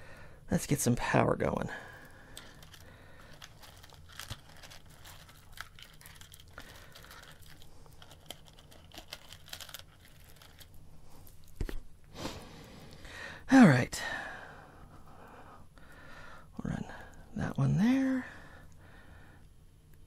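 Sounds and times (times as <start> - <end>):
hands handling wires clicking: 2.3 - 10.8.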